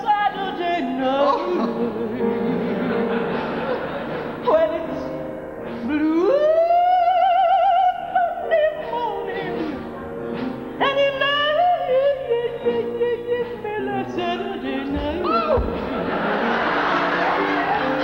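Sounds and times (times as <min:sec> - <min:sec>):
woman singing operatically: 0:00.0 - 0:02.8, 0:04.4 - 0:10.0, 0:10.8 - 0:15.9
backing accompaniment: 0:00.0 - 0:18.0.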